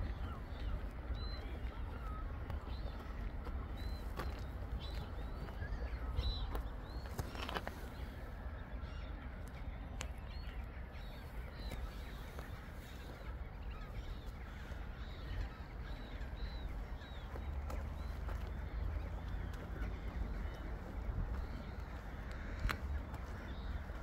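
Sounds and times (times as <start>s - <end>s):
waterbirds calling: 0.0s - 24.0s
steady low rumble: 7.8s - 24.0s.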